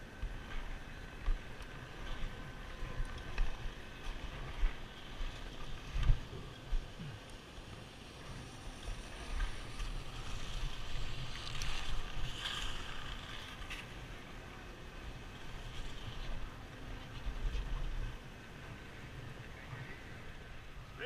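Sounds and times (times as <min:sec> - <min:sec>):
skis scraping on snow: 0:08.1 - 0:14.1, 0:15.2 - 0:20.2.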